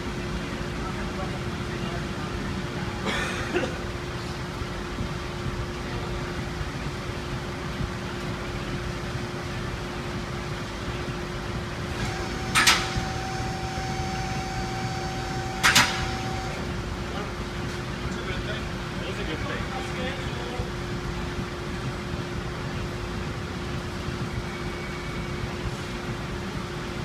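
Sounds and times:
sharp metallic clanks: 15.6s - 16.2s.

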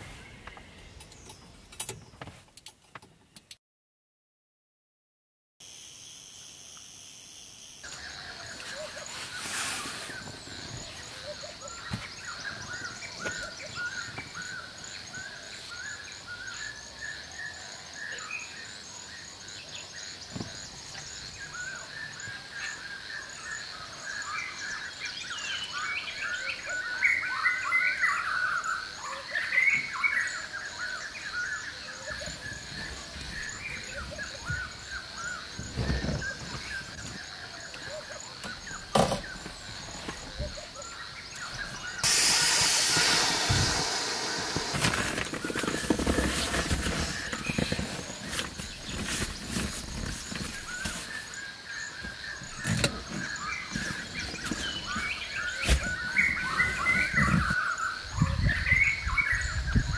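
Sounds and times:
high insect buzz: 5.6s - 8.2s, 42.0s - 48.2s
birds chirping and trilling: 7.8s - 59.9s
sharp knock: 42.0s - 45.5s.

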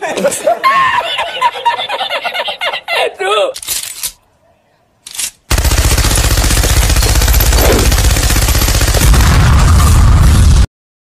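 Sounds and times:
machine gun firing rapidly: 5.5s - 10.0s.

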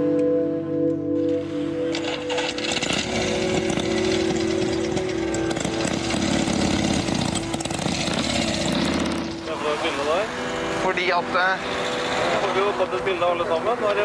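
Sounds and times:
motorcycle engine running: 2.0s - 10.8s.

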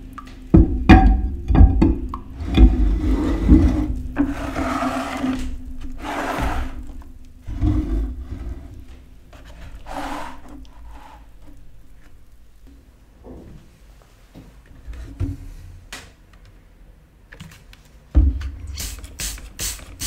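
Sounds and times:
iron scraping and rubbing: 2.4s - 6.8s, 7.5s - 11.3s.

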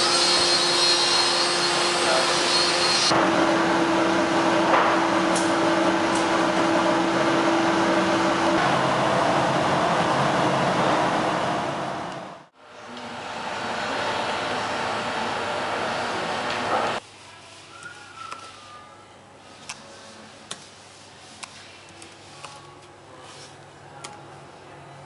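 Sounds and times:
woodworking machinery running: 0.0s - 12.3s, 12.9s - 17.0s.

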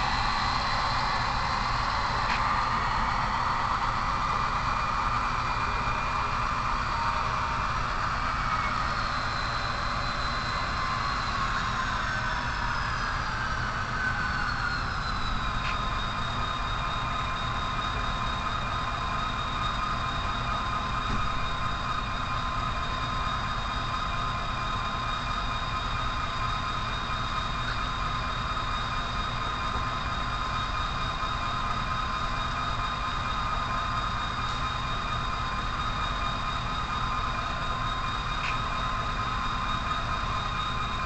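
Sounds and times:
model locomotive running: 0.0s - 41.0s.

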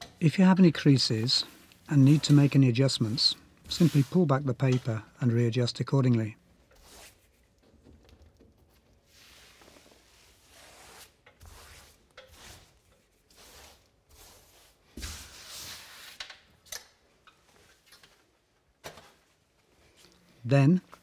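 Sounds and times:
wallpaper rustling and swishing: 0.8s - 5.1s, 6.7s - 7.6s, 8.7s - 16.2s.

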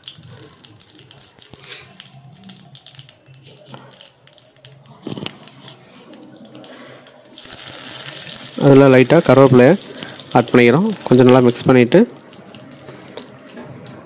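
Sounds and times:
seeds sizzling and popping in oil: 0.0s - 14.0s.

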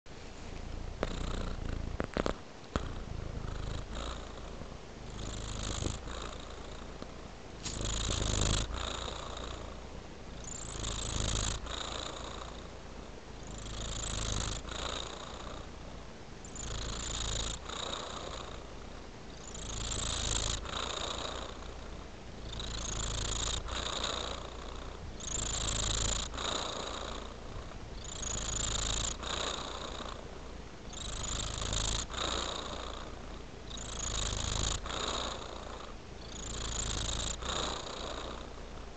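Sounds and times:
cat purring: 0.2s - 38.9s.

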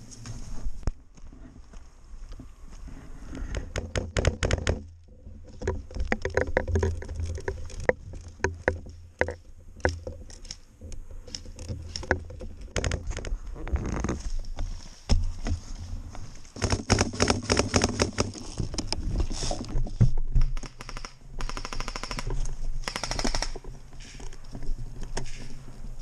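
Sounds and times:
footsteps and gear rattling: 0.1s - 20.6s.

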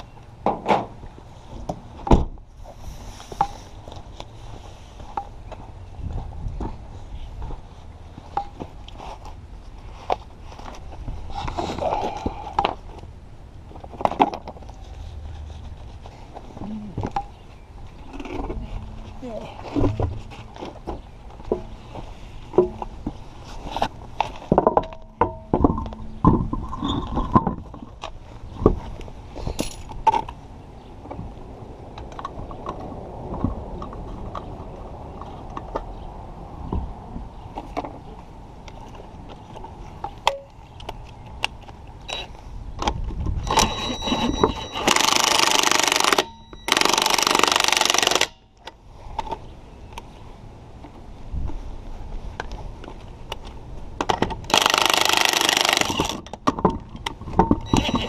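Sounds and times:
metal clinks and knocks: 18.0s - 23.2s, 24.2s - 28.0s, 29.5s - 30.3s, 43.4s - 48.5s, 54.1s - 58.0s.

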